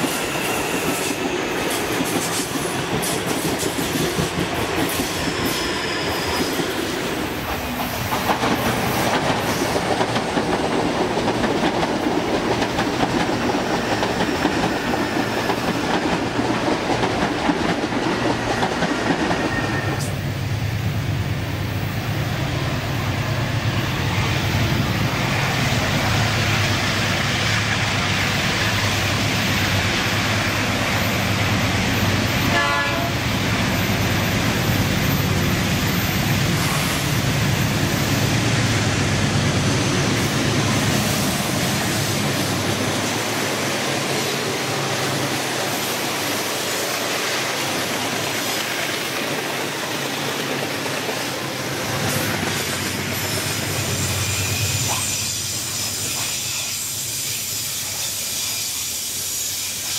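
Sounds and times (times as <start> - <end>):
diesel locomotive engine drone: 0.0 - 59.9
train horn blast: 32.4 - 33.3.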